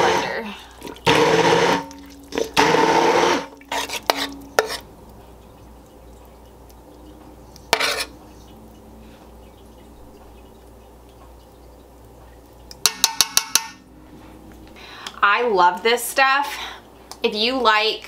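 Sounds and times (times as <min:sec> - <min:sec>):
immersion blender whirring: 0:00.0 - 0:00.4, 0:01.0 - 0:03.6
spoon scraping pot: 0:00.0 - 0:04.9, 0:07.5 - 0:08.6
spoon stirring soup: 0:00.0 - 0:13.8
metal clicking against pot: 0:12.7 - 0:13.8.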